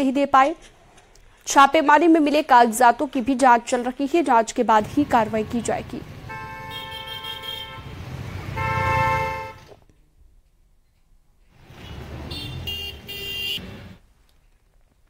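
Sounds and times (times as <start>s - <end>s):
street traffic rumble: 4.1s - 10.1s, 11.4s - 15.0s
vehicle horns honking: 5.4s - 9.8s, 11.7s - 14.0s
high-pitched horn: 6.2s - 9.8s.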